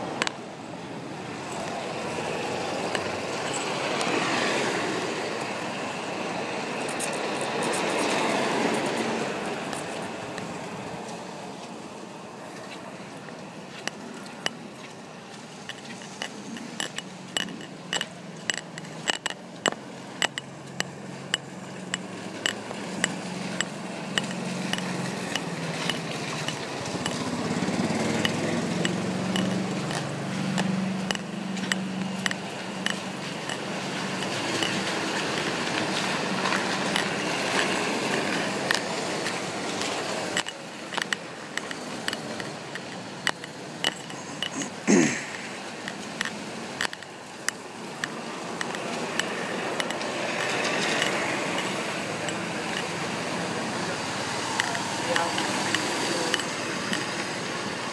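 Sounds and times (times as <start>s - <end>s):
pendant tapping against phone: 15.7s - 27.2s, 28.2s - 33.6s.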